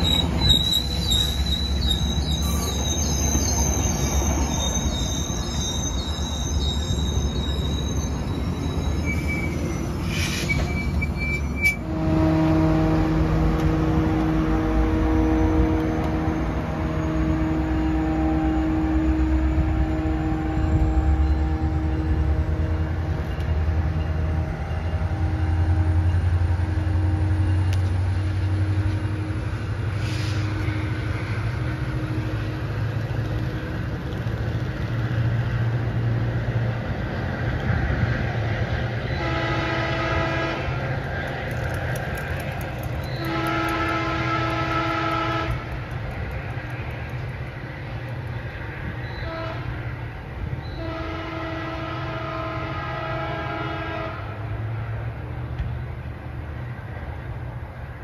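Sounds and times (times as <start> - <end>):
diesel locomotive rumbling: 0.0 - 58.0
train air horn blasts: 11.6 - 23.0, 39.1 - 40.8, 43.1 - 45.8, 49.1 - 49.9, 50.7 - 54.5.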